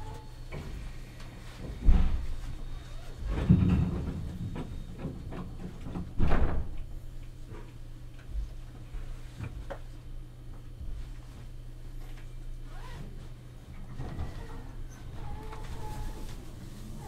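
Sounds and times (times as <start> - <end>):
electric train hum: 13.4 - 17.0.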